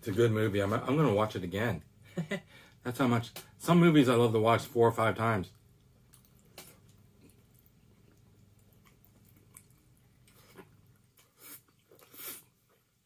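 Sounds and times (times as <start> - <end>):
man chewing fried food: 5.5 - 13.0.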